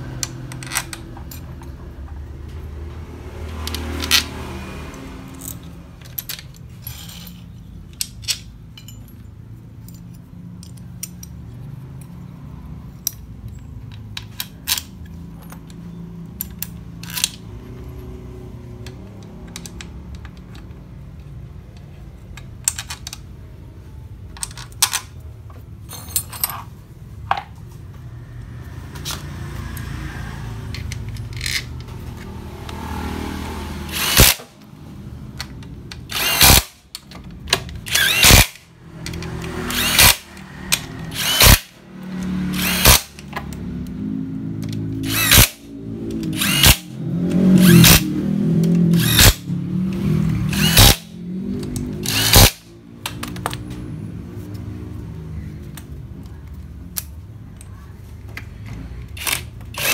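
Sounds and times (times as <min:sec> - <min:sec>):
metallic clicks of bolts handled: 0:00.2 - 0:02.2, 0:04.9 - 0:17.5, 0:18.8 - 0:27.4
cordless power driver running: 0:46.4 - 0:46.9, 0:48.9 - 0:49.4, 0:52.0 - 0:52.6.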